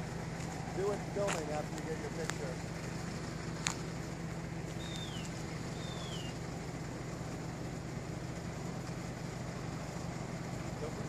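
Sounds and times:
engine idling hum: 0.0s - 11.0s
bird falling whistles: 4.8s - 6.4s.

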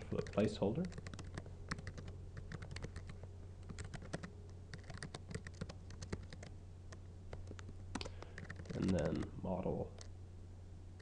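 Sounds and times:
steady low hum: 0.0s - 11.0s
computer keyboard typing: 0.2s - 6.5s, 7.3s - 9.3s.

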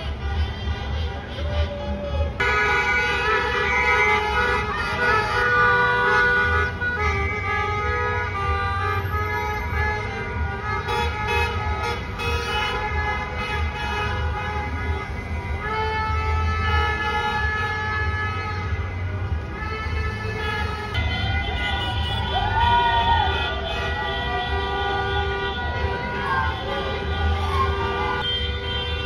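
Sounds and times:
car horns honking: 0.0s - 29.0s.

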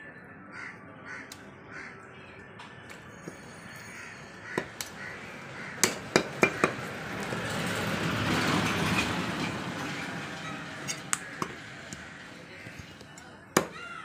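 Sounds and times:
cleaver chopping on wooden block: 5.8s - 6.8s, 11.1s - 13.8s.

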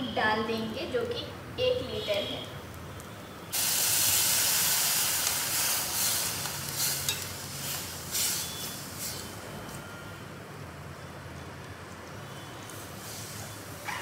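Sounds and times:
milk sizzling in hot oil: 2.6s - 10.0s, 10.7s - 14.0s.

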